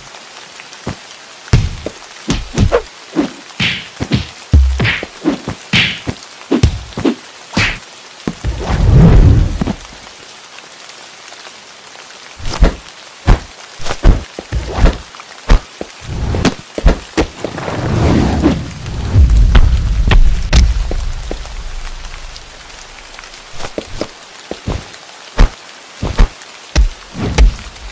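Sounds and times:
faint steady hiss: 0:00.0 - 0:27.9
sharp knocks and thuds: 0:00.9 - 0:02.8, 0:03.6 - 0:09.8, 0:12.4 - 0:15.7, 0:16.3 - 0:17.5, 0:19.2 - 0:21.5, 0:25.4 - 0:27.7
low rumbles: 0:17.4 - 0:23.2.

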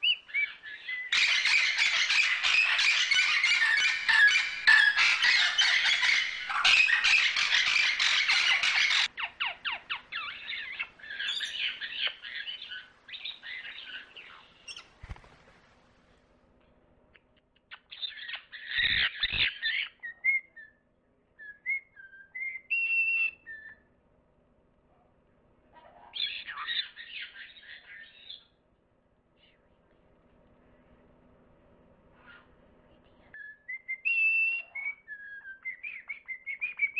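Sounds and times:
harsh rasping bird calls: 0:00.0 - 0:15.3.

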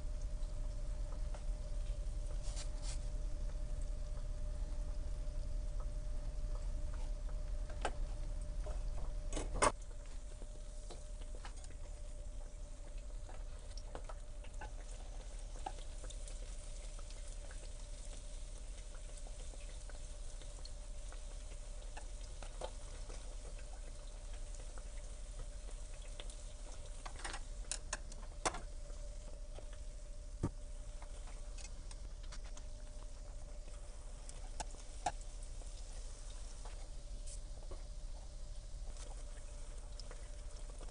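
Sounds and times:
dough sizzling in hot oil: 0:00.0 - 0:40.9
faint steady hum: 0:00.0 - 0:40.9
chopsticks clicking on fryer: 0:27.0 - 0:28.6.

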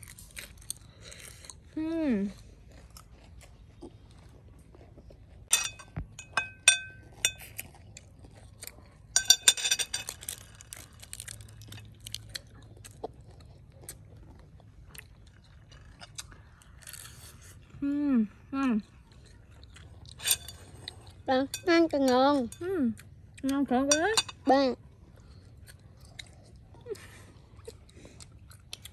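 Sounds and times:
chewing: 0:00.0 - 0:23.6, 0:24.3 - 0:28.9
cutlery clinking on a plate: 0:05.5 - 0:07.5, 0:09.2 - 0:10.2, 0:20.2 - 0:20.7.

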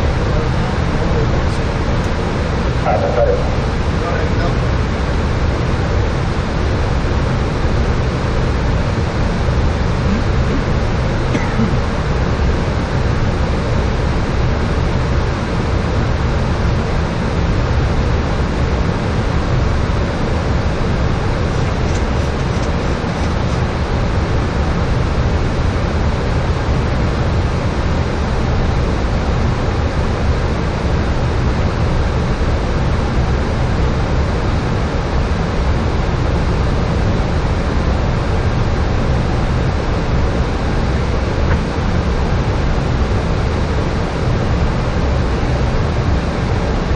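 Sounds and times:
low rumble: 0:00.0 - 0:07.7.

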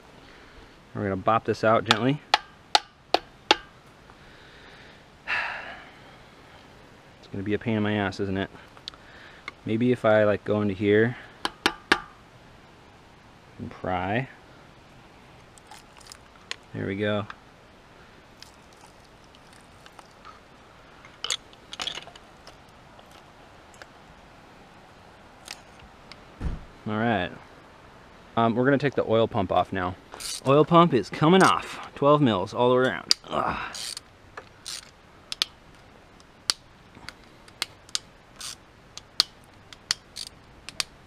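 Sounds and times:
screwdriver clicking and scraping metal: 0:30.2 - 0:30.5, 0:33.8 - 0:34.0, 0:34.6 - 0:35.5, 0:37.5 - 0:40.9.

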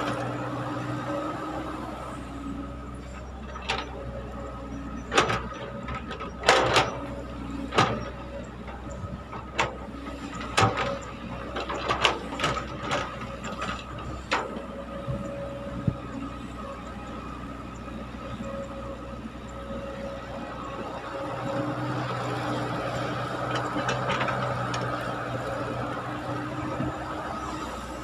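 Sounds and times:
diesel engine running: 0:00.0 - 0:28.0
excavator bucket clanking: 0:04.9 - 0:15.3, 0:23.4 - 0:25.1.

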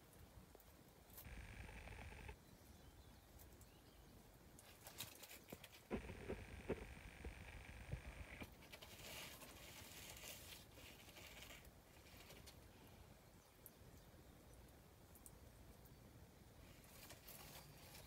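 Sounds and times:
faint high hum: 0:01.2 - 0:02.4, 0:05.9 - 0:08.5.

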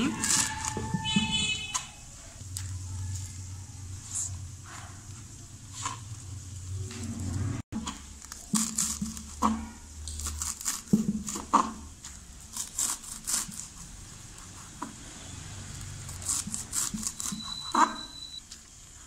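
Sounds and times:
knife chopping leaves on wooden board: 0:07.8 - 0:13.8, 0:16.1 - 0:18.0.

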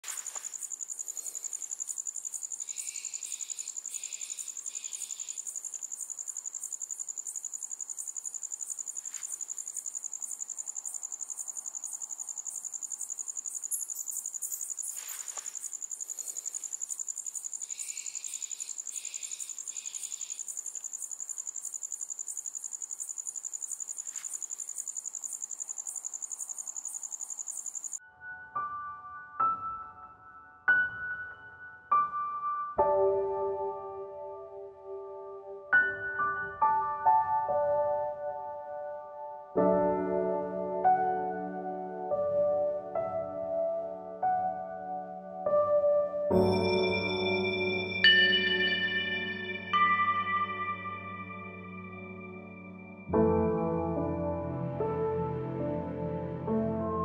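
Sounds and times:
crickets chirping: 0:00.0 - 0:28.0.

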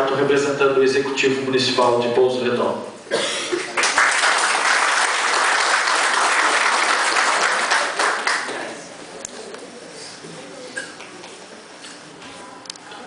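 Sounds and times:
audience applauding: 0:03.7 - 0:08.8.

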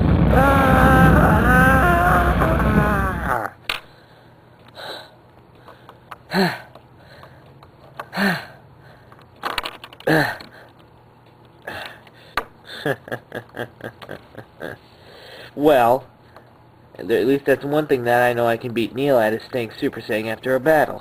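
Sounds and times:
person making vocal sounds: 0:00.0 - 0:03.6.

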